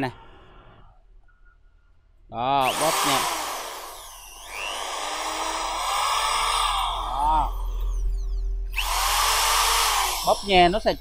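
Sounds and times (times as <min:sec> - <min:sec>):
drill motor whine: 0:02.6 - 0:11.0.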